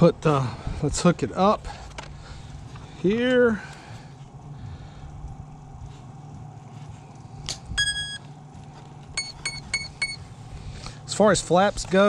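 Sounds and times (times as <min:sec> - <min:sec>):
quick beeps: 0:07.8 - 0:08.3, 0:09.2 - 0:10.3
motor start-up tones: 0:07.8 - 0:10.9.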